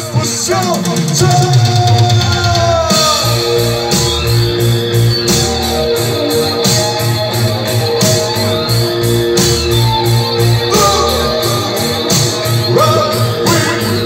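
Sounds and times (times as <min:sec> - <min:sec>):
live rock band playing: 0:00.0 - 0:14.0.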